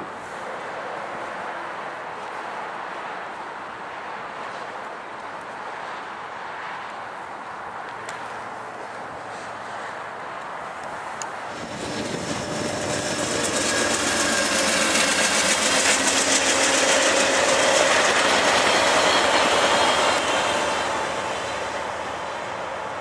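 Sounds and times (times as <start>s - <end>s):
passenger train passing: 9.7s - 23.0s
train wheels clicking: 11.5s - 22.7s.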